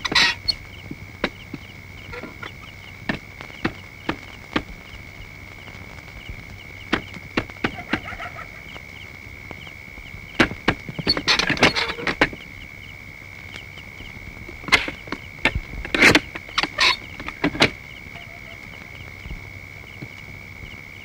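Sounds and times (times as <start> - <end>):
high chirring insect trill: 0.0 - 21.0
sharp taps and knocks: 3.0 - 4.8, 6.9 - 8.1.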